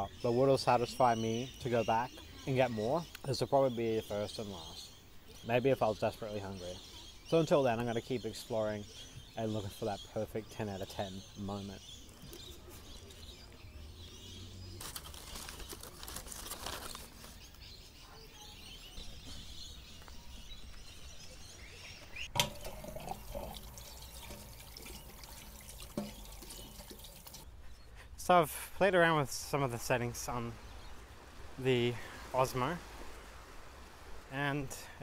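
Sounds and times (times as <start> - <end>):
tap water running into sink: 22.3 - 27.4.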